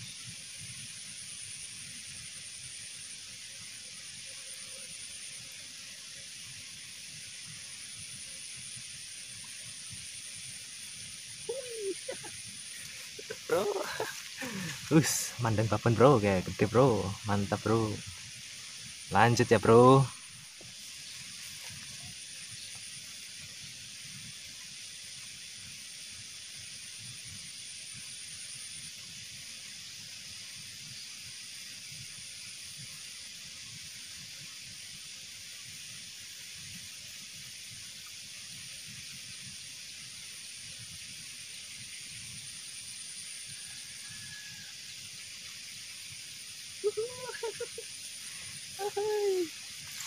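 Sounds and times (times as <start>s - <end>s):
outdoor background hiss: 0.0s - 50.0s
water trickling: 10.6s - 22.8s, 46.7s - 50.0s.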